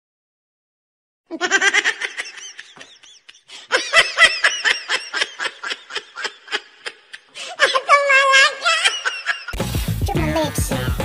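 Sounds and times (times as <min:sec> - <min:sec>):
high-pitched laughter: 0:01.3 - 0:09.6.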